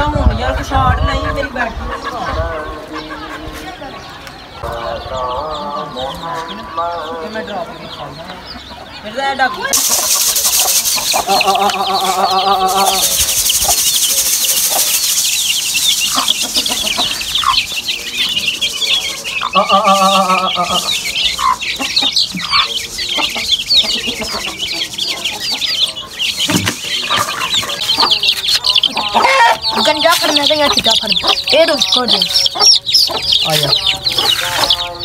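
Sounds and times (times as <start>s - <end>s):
chicks peeping: 0.0s - 35.0s
hen calling: 9.6s - 35.0s.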